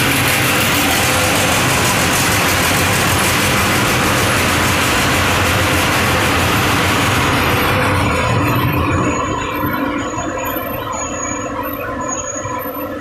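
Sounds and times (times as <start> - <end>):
dryer machine rushing and humming: 0.0 - 13.0.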